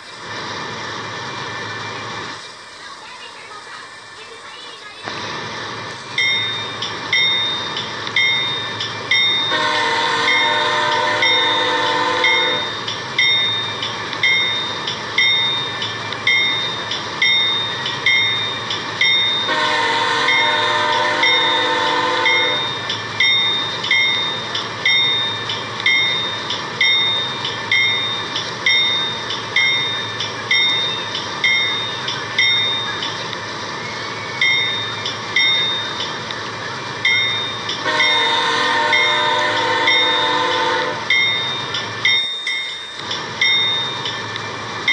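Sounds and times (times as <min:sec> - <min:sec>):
bell ringing steadily: 0:06.1 - 0:19.7, 0:20.3 - 0:44.9
train horn chord blasts: 0:09.5 - 0:12.7, 0:19.4 - 0:22.7, 0:37.8 - 0:41.1.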